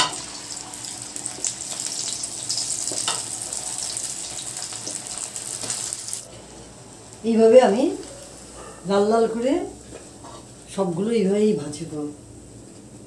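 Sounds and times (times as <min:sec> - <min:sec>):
food deep-frying in sizzling oil: 0:00.0 - 0:08.3.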